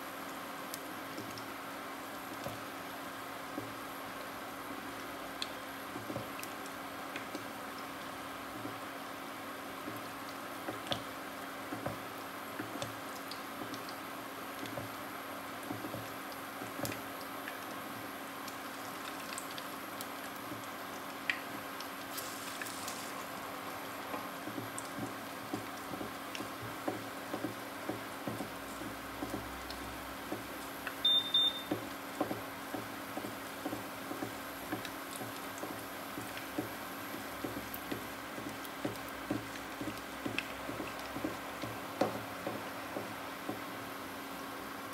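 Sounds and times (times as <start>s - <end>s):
oil crackles and pops: 0.2s - 1.6s, 5.0s - 8.8s, 9.8s - 43.8s
food sizzling in hot oil: 21.8s - 23.3s
short electronic beep: 31.0s - 31.7s.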